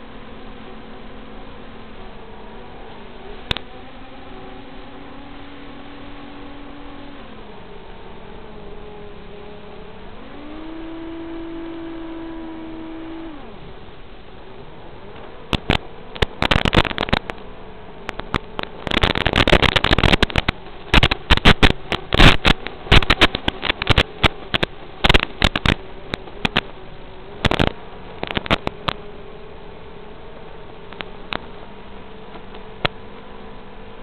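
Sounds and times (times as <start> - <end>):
quadcopter motors buzzing: 0.0 - 34.0
static crackles: 15.2 - 33.0.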